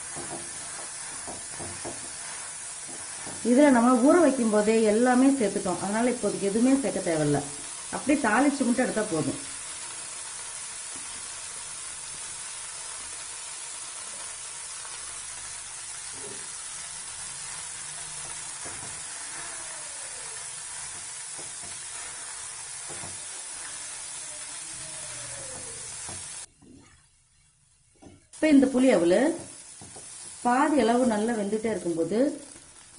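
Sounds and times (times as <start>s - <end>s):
spatula scraping and knocking pan: 0.0s - 4.0s, 18.0s - 19.6s, 20.8s - 24.0s, 29.3s - 30.4s
food sizzling in hot oil: 0.0s - 26.5s, 28.3s - 32.9s.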